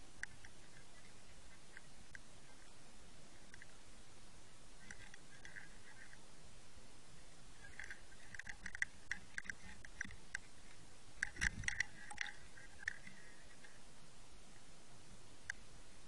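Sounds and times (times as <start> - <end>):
underwater clicks and crackles: 0.2 - 2.8, 3.4 - 3.8, 4.8 - 6.2, 7.6 - 13.8.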